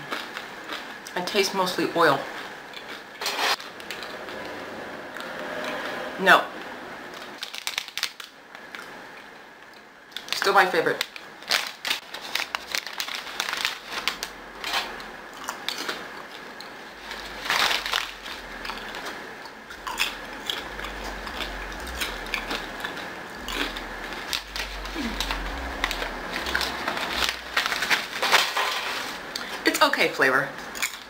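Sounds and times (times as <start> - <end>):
popcorn being chewed: 0.0 - 1.5, 2.1 - 5.8, 7.1 - 29.7, 30.6 - 31.0
plastic bag crinkling: 7.4 - 8.3, 10.2 - 16.0, 17.0 - 19.2, 19.8 - 29.6.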